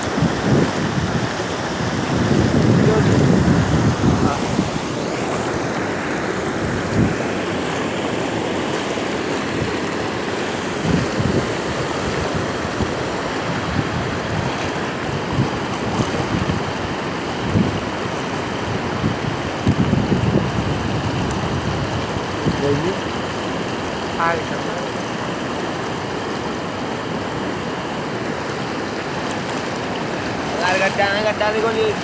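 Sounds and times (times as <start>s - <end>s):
wind buffeting microphone: 0.0s - 5.7s, 6.5s - 7.2s, 10.7s - 23.0s
floodwater rushing: 0.0s - 32.0s.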